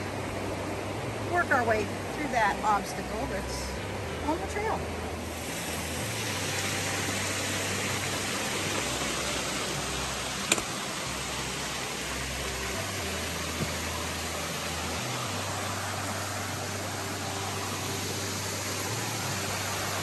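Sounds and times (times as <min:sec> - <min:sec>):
creek flowing: 0:00.0 - 0:20.0
sharp click: 0:10.5 - 0:10.7.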